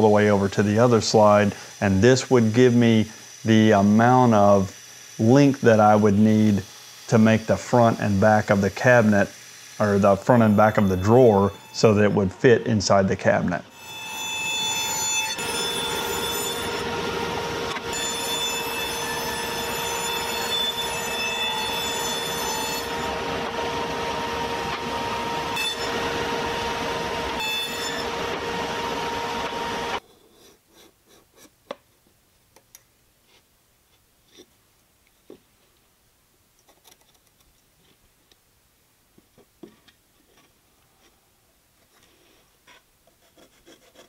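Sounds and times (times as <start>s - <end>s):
table saw whining: 0.0s - 30.0s.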